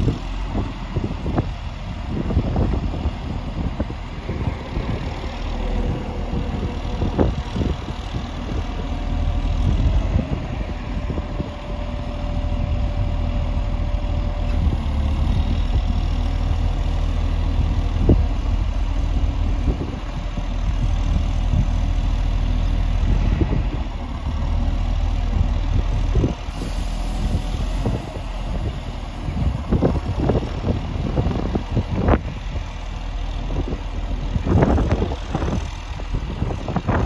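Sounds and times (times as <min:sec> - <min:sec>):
diesel truck engine idling: 0:00.0 - 0:37.0.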